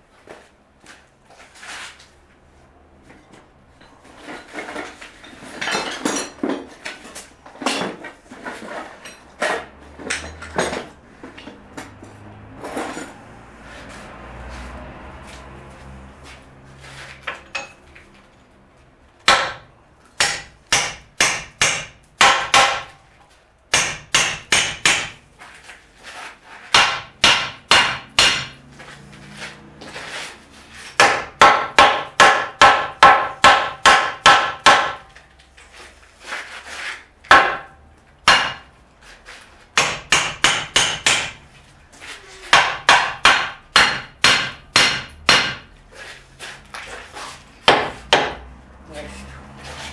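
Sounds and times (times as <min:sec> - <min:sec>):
hammer striking steel beam: 0:19.2 - 0:23.0, 0:23.7 - 0:25.2, 0:26.7 - 0:28.6, 0:31.0 - 0:35.1, 0:37.3 - 0:38.7, 0:39.8 - 0:41.4, 0:42.5 - 0:45.7, 0:47.7 - 0:48.4.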